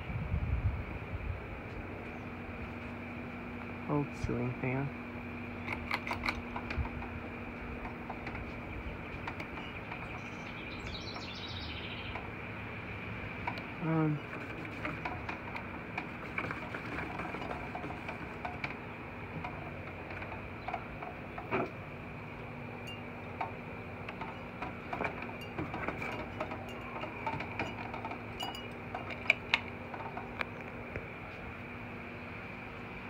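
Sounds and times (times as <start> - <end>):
ceiling fan motor hum: 0.0 - 33.0
light clinks and ticks: 22.8 - 30.8.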